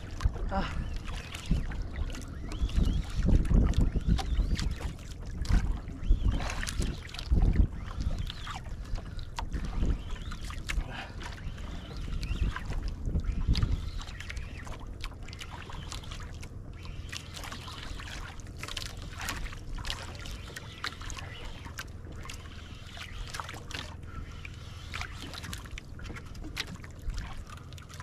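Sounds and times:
wind rumble on microphone: 0:00.0 - 0:15.2
waves lapping against boat hull: 0:00.0 - 0:28.0.

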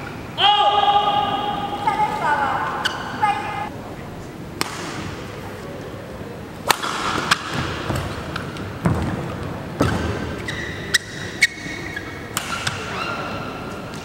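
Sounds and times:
shoes squeaking on court floor: 0:02.0 - 0:03.6, 0:07.5 - 0:14.0
racket hitting shuttlecock: 0:04.6 - 0:05.3, 0:06.6 - 0:14.0.

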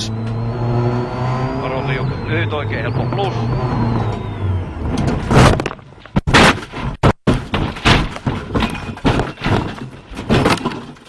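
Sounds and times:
car engine: 0:00.0 - 0:11.0
car body crashing into ground: 0:05.2 - 0:11.0.

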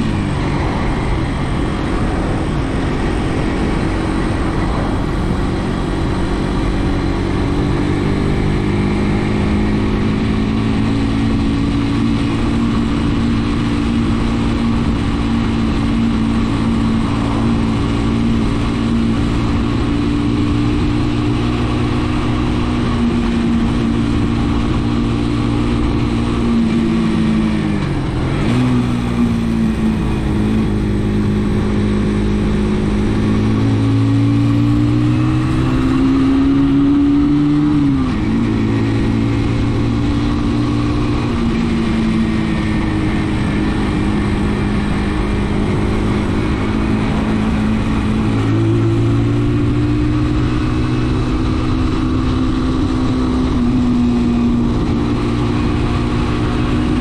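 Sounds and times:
motorcycle engine running: 0:00.0 - 0:57.0.

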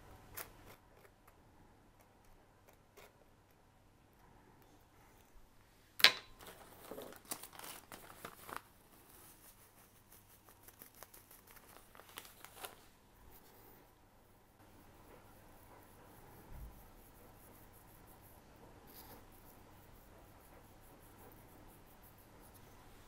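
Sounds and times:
paper crinkling and tearing: 0:06.4 - 0:13.0.

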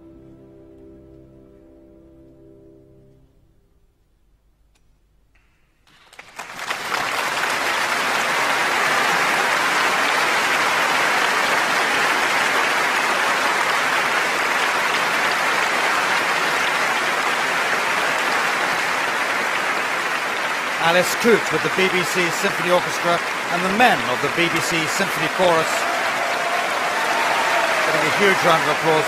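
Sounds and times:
audience applause: 0:05.9 - 0:29.0.

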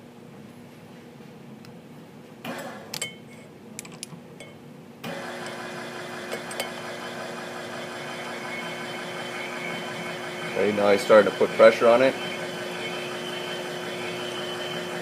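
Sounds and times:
drive motor running: 0:05.1 - 0:15.0.

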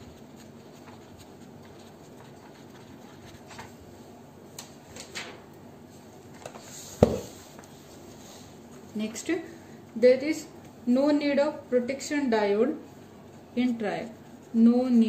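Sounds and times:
hand rubbing paper: 0:00.0 - 0:04.1.

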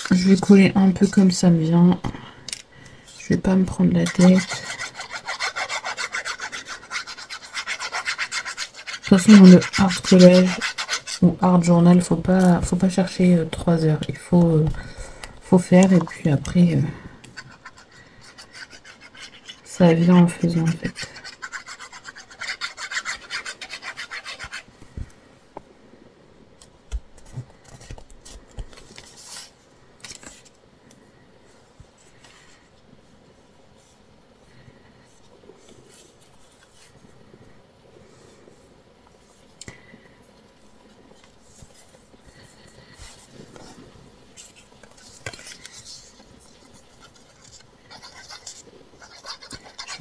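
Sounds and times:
rasping paper strokes: 0:03.1 - 0:11.4, 0:17.4 - 0:24.7, 0:44.4 - 0:50.0
paper rustling: 0:44.4 - 0:50.0.

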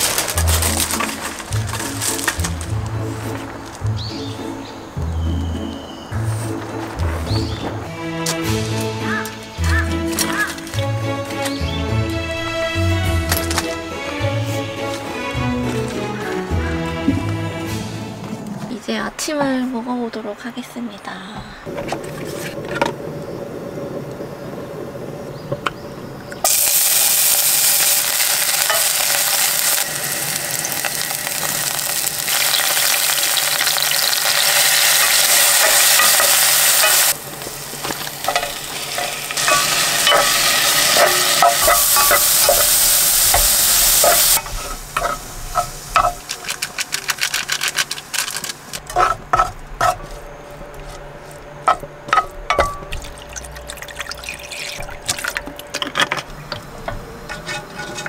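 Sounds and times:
oil sizzling in a pan: 0:26.4 - 0:46.7
spatula scraping a pan: 0:57.2 - 0:58.0.

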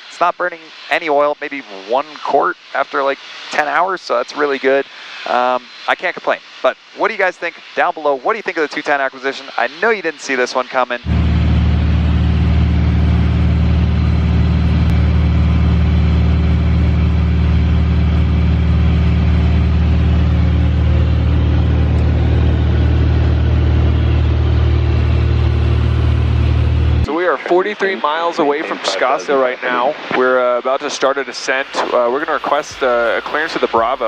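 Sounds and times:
airplane engine and propeller drone: 0:00.0 - 0:34.0.

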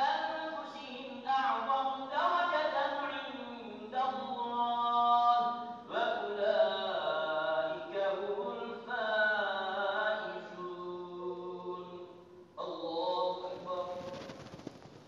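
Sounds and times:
man chanting recitation: 0:00.0 - 0:14.4.

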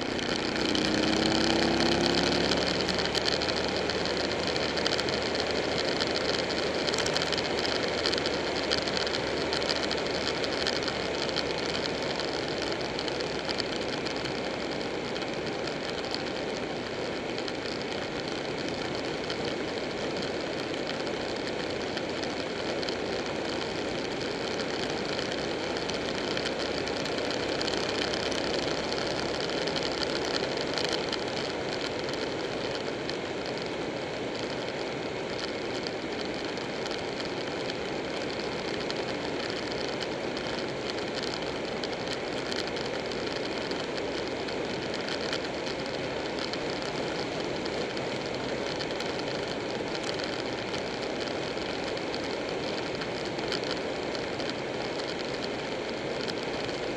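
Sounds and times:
motorcycle engine riding: 0:00.0 - 0:56.9
wind and road noise: 0:00.0 - 0:56.9.

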